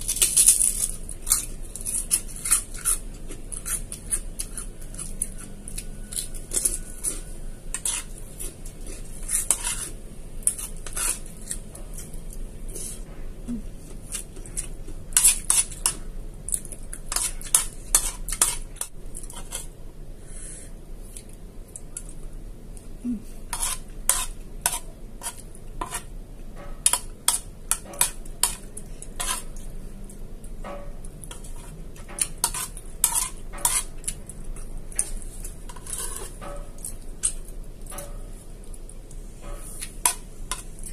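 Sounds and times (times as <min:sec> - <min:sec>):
spoon scraping ceramic plate: 0:01.9 - 0:11.6, 0:23.5 - 0:26.1, 0:29.2 - 0:29.6, 0:30.8 - 0:33.9, 0:35.0 - 0:36.8.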